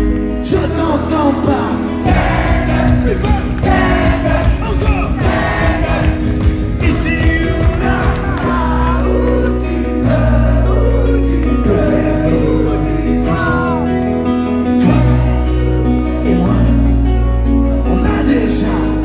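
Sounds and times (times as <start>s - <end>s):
live rock band playing: 0.0s - 19.0s
man singing into a microphone: 0.4s - 6.0s, 6.8s - 19.0s
drum beat: 2.1s - 8.8s.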